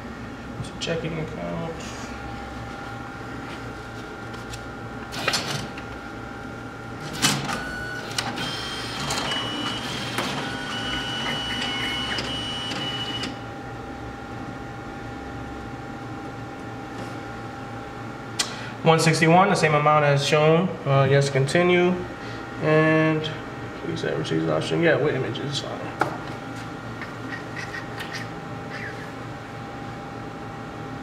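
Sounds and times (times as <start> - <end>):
steady machine hum: 0.0 - 31.0
mechanical whirring with high whine: 6.7 - 13.5.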